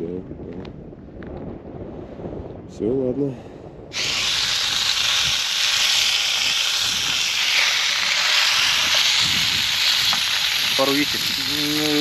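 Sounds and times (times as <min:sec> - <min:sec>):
food sizzling in a pan: 0:04.0 - 0:12.0.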